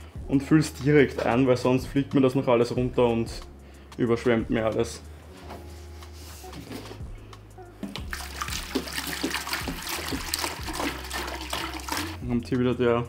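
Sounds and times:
water pouring and splashing: 7.8s - 12.2s.

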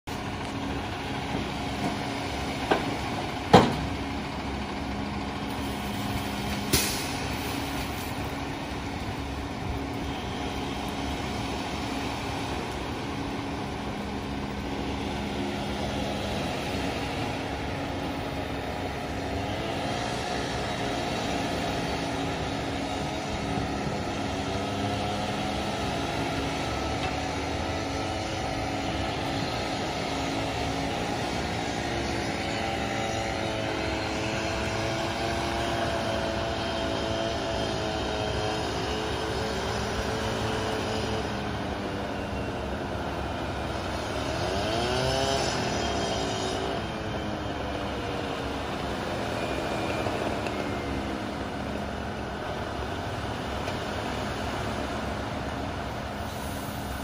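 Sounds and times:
truck engine running: 0.1s - 45.9s
water hose spraying: 5.5s - 8.3s, 56.2s - 57.0s.

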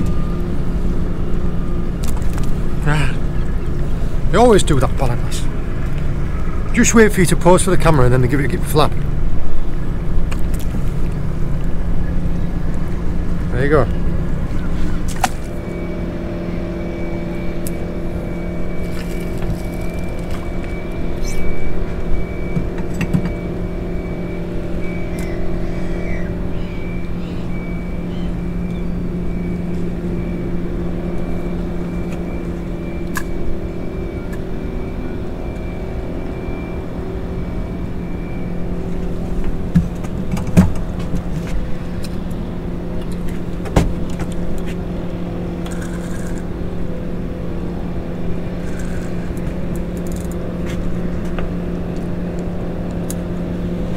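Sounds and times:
outboard motor idling: 0.0s - 53.9s
knocks and clicks from boat: 22.2s - 23.5s, 38.9s - 44.8s.

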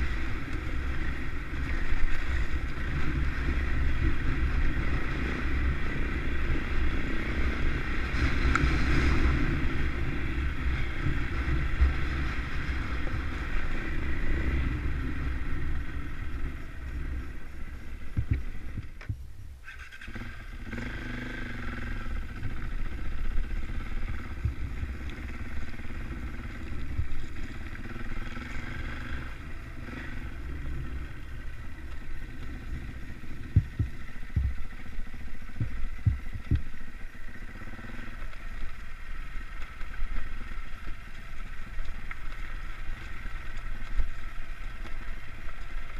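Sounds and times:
motorbike engine running: 0.0s - 45.9s
knocks on rocky ground: 18.1s - 19.2s, 33.5s - 34.6s.

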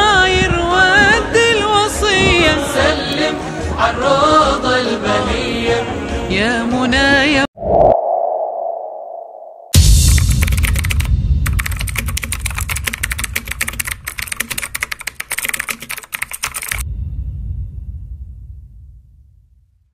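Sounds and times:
fast dense clicking: 10.0s - 16.8s
deep rumble: 16.8s - 19.9s.

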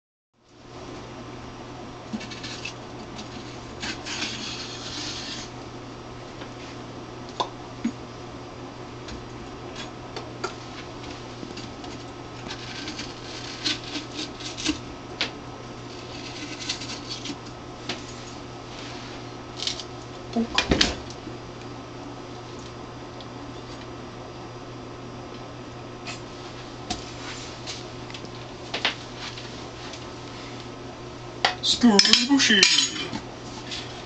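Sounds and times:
steady low hum: 0.4s - 34.0s
knife scraping watermelon: 2.1s - 5.6s, 11.5s - 14.8s, 15.9s - 18.4s.

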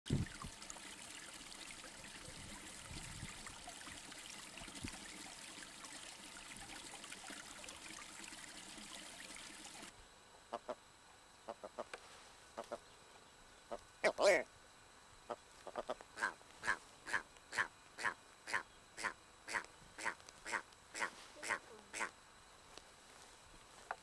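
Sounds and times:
grouse calling: 12.6s - 12.8s, 15.3s - 22.1s.

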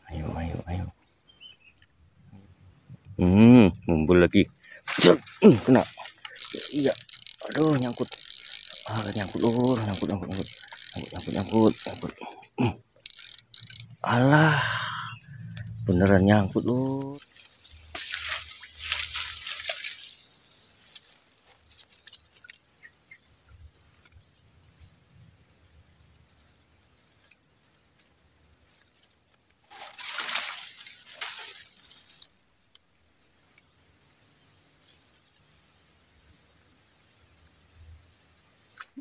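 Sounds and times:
high-pitched insect drone: 0.0s - 21.1s
rustling of tugged fishing line: 4.8s - 12.3s, 13.0s - 14.0s, 17.2s - 22.6s, 29.6s - 32.4s.

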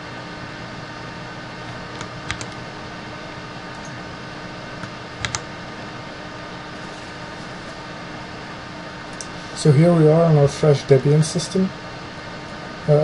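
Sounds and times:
faint hum: 0.0s - 13.0s
keyboard keystrokes: 1.9s - 2.6s, 4.8s - 5.5s.

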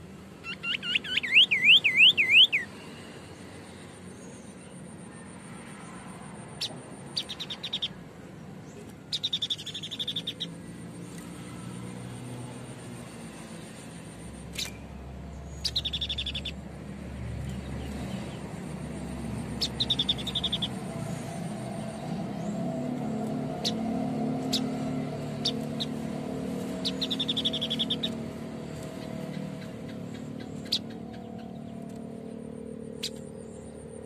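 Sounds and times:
bird calling in rapid trills: 0.4s - 2.8s, 4.4s - 8.1s, 9.0s - 16.7s, 17.6s - 34.0s
sharp clicks: 14.5s - 14.8s.

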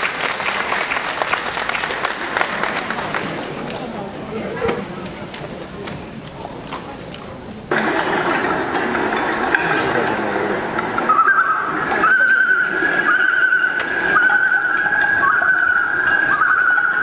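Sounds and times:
wavering high melody: 9.5s - 17.0s.

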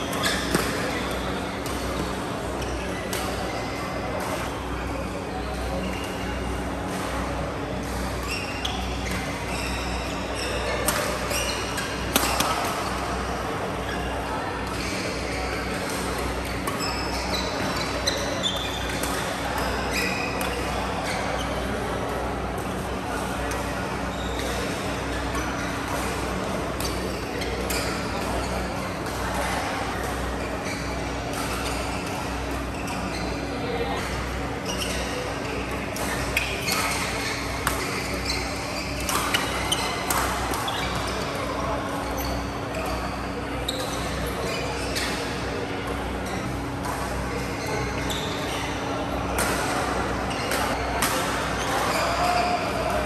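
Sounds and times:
shoes squeaking on court: 0.0s - 4.6s, 7.6s - 21.7s, 24.0s - 53.0s
racket hitting shuttlecock: 0.1s - 2.0s, 39.0s - 40.7s, 49.4s - 51.9s.

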